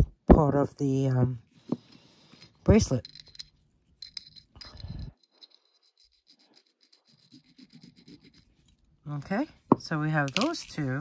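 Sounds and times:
metal scraping on stone: 0:01.7 - 0:08.9.

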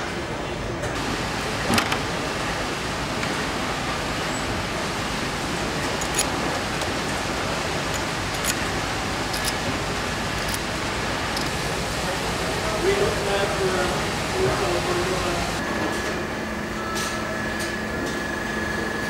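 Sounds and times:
factory hall hiss: 0:00.0 - 0:19.0
small metal parts clicking: 0:06.0 - 0:07.2, 0:07.9 - 0:09.7, 0:10.3 - 0:10.7.

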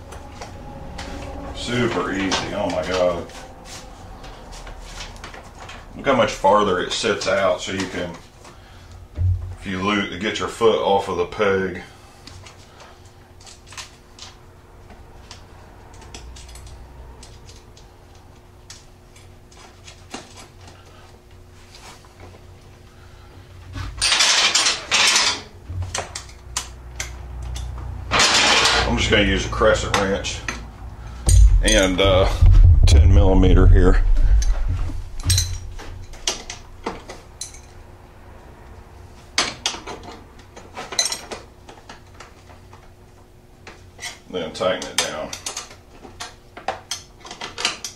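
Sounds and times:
steady low hum: 0:00.0 - 0:10.2, 0:29.1 - 0:39.2
wrenches clinking on bolt: 0:35.2 - 0:35.6.

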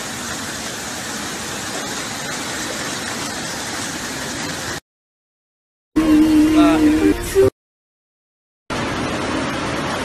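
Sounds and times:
flood water rushing: 0:00.0 - 0:04.8, 0:08.7 - 0:10.0.

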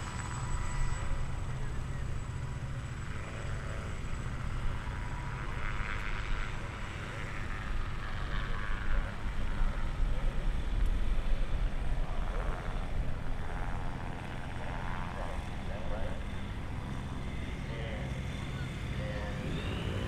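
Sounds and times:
propeller aircraft engines droning: 0:00.0 - 0:20.0.

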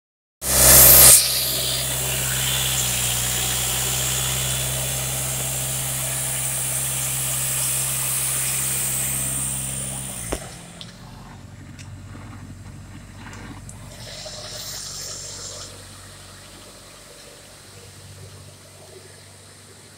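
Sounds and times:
loud burst: 0:00.4 - 0:11.2
engine stopping click: 0:00.4 - 0:19.9
diesel engine idling: 0:00.5 - 0:19.9.

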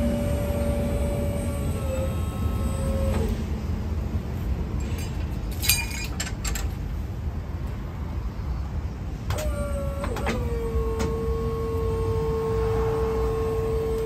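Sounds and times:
hydraulic pump motor whining: 0:00.0 - 0:03.7, 0:09.3 - 0:14.0
sharp metallic clank: 0:04.8 - 0:06.7.

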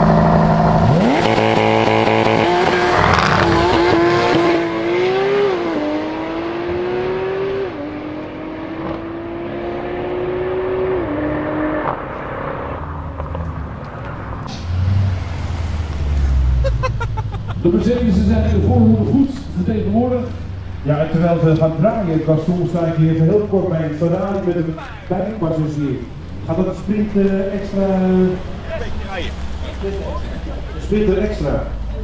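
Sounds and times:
car engine revving through upshifts: 0:00.0 - 0:22.5
second car accelerating: 0:00.0 - 0:32.0.

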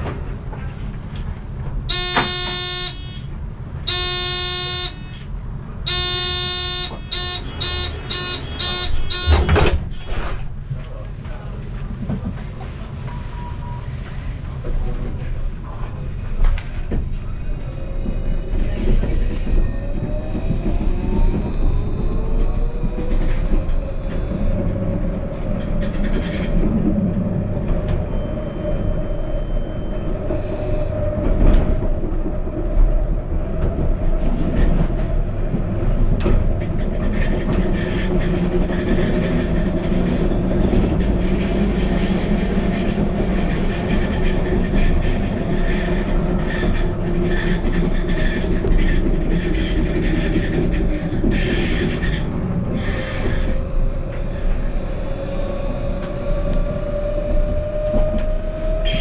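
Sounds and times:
sharp clacks over track: 0:00.0 - 0:02.7, 0:36.0 - 0:54.2
wheels rumbling on rail: 0:00.0 - 0:59.0
tram motors whining: 0:13.3 - 0:59.0.

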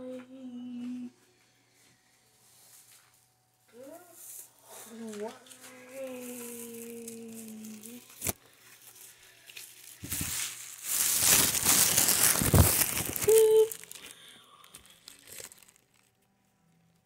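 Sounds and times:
loud crinkling rustle: 0:05.6 - 0:16.2.

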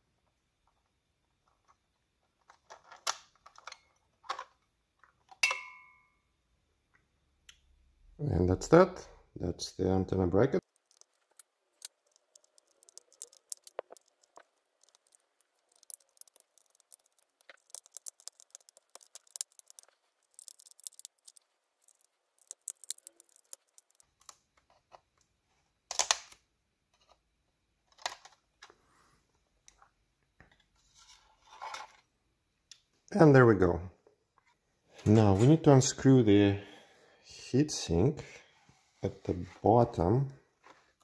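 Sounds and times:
metal foil rustling: 0:10.6 - 0:24.3
tweezers clicking and scraping metal: 0:10.6 - 0:24.3.

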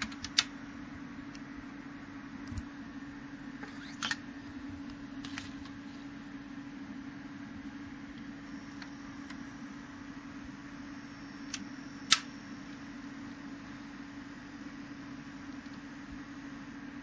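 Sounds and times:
turntable motor hum: 0:00.0 - 0:17.0.

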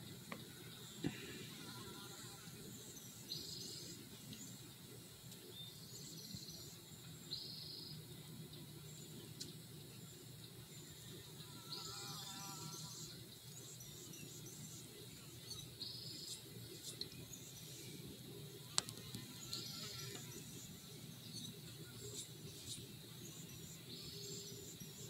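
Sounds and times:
faint chirps: 0:08.8 - 0:25.0.

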